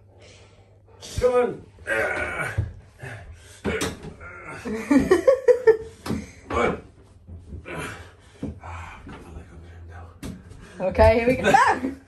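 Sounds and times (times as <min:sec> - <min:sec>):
dog grumbling and moaning: 0:01.8 - 0:04.8.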